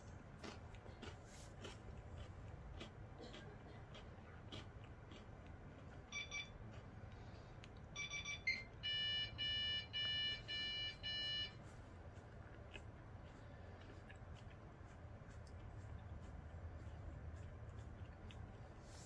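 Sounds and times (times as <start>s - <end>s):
electronic beeps: 8.0s - 11.6s.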